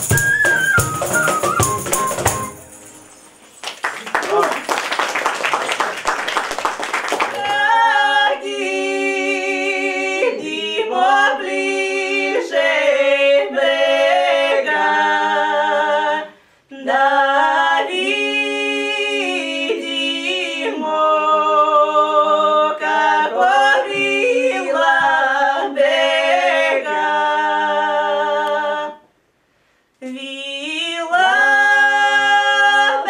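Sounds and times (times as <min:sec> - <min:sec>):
women singing folk song a cappella: 0:07.4 - 0:29.2, 0:30.0 - 0:33.0.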